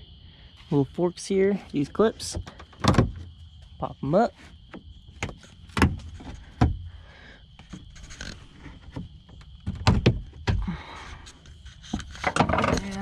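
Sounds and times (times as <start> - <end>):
sharp knocks: 8.9 - 10.7.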